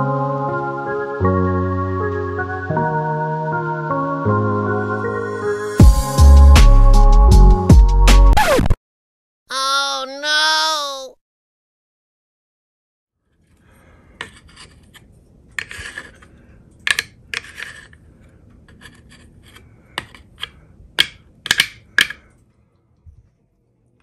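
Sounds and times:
fork scraping nonstick plate: 15.6s - 16.3s, 17.4s - 18.0s.

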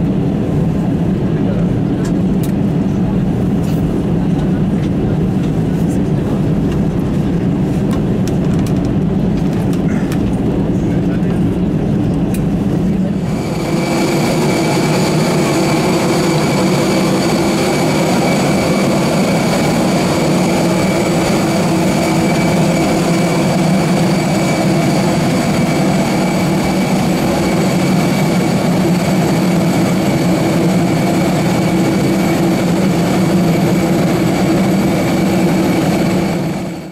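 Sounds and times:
jet airliner turbine whine: 0.0s - 36.9s
low hum: 5.8s - 36.9s.

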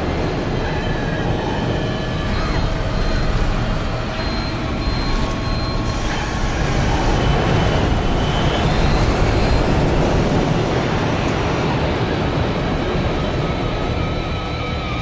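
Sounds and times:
jet engine roar: 0.0s - 15.0s.

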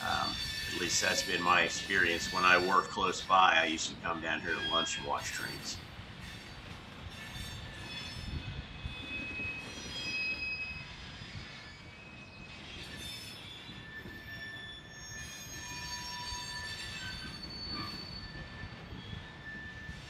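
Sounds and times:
freight cars rumbling: 0.0s - 7.8s
steel wheels squealing on rails: 0.0s - 20.0s.

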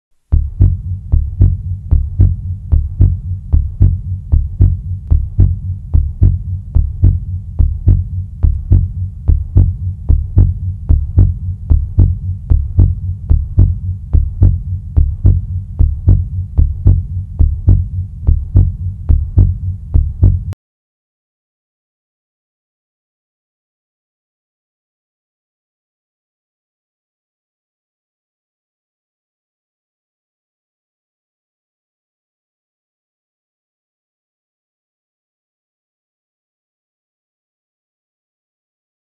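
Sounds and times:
deep heartbeat thumps: 0.3s - 20.6s
low hum: 0.3s - 20.6s.

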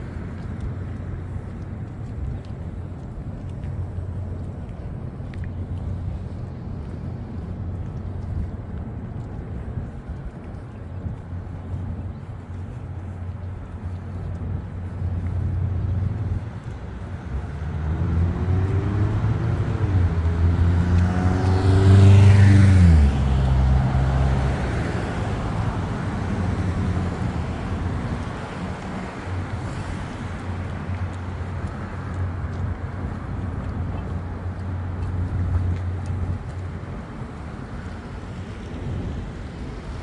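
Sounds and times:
steady traffic hum: 0.0s - 40.0s
vehicle passing close: 17.4s - 25.8s.

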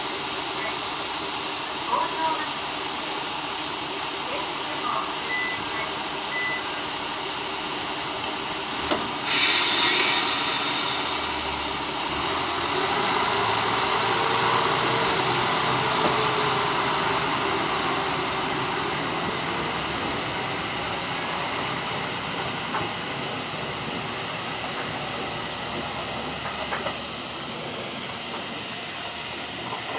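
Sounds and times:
railcar diesel engine revving: 0.0s - 29.9s
air brake hiss: 9.2s - 11.3s.

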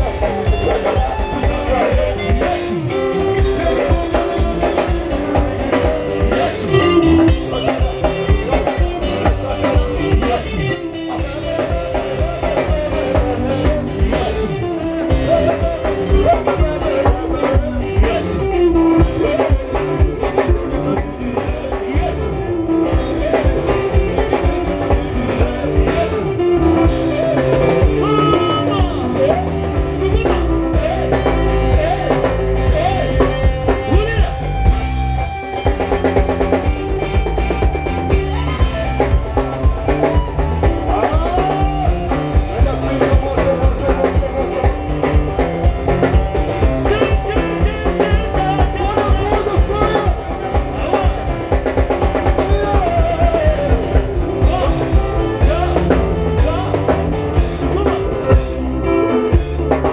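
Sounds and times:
men singing into microphones: 0.0s - 37.0s, 38.7s - 58.5s
drum kit and bass beat: 0.0s - 59.9s
live band playing dance music: 0.0s - 59.9s.

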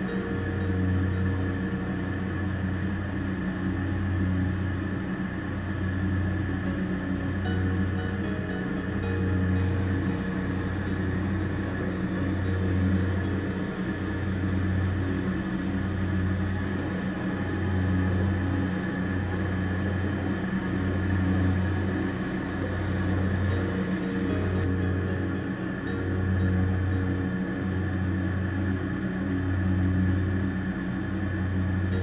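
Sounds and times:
exhaust fan humming: 0.0s - 32.0s
glassworking torch hissing: 7.6s - 24.7s.

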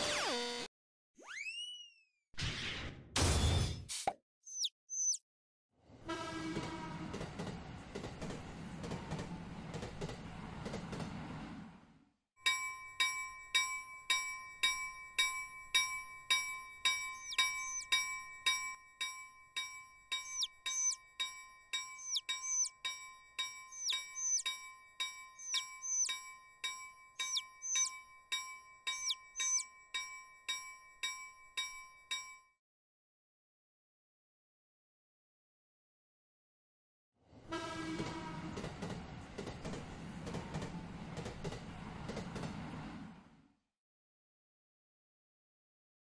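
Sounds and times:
train running past: 6.1s - 12.0s, 37.4s - 43.5s
level crossing warning bell: 12.4s - 32.5s
chick peeping: 17.2s - 17.9s, 20.3s - 21.0s, 22.0s - 22.7s, 23.8s - 24.4s, 25.4s - 26.1s, 27.2s - 27.9s, 29.0s - 29.6s.

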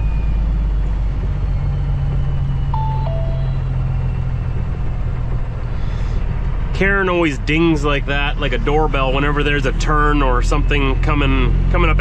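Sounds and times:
truck diesel engine drone: 0.0s - 12.0s
two-note navigator chime: 2.8s - 4.0s.

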